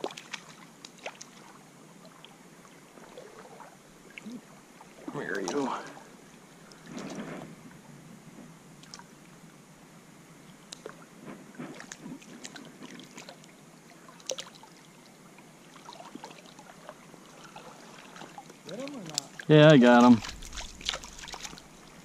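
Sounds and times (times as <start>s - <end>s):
small splashes and clicks: 0.0s - 2.3s, 8.8s - 9.1s, 10.6s - 11.0s, 11.7s - 14.8s, 15.8s - 22.0s
water lapping and trickling: 0.0s - 7.9s, 8.7s - 9.6s, 10.3s - 22.0s.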